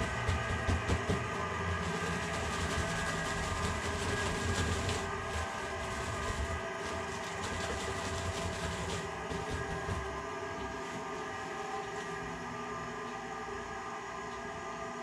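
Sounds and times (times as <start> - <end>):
electric grain mill grinding: 0.0 - 15.0.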